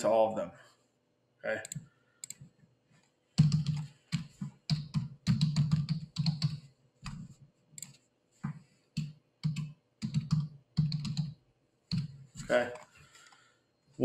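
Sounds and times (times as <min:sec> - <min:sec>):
typing on computer keyboard: 0:03.4 - 0:06.7, 0:09.0 - 0:12.2.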